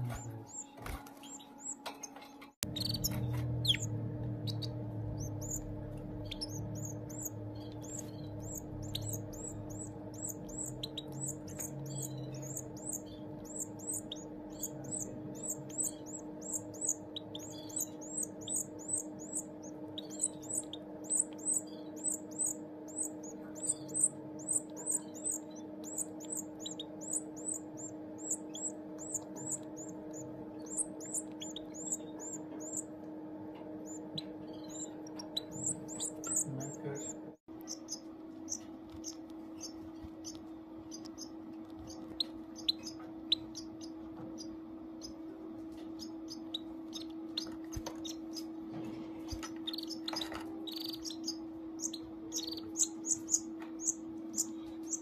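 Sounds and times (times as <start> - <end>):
steady low hum: 0.0 - 55.0
nestling begging cheeps: 2.7 - 33.0.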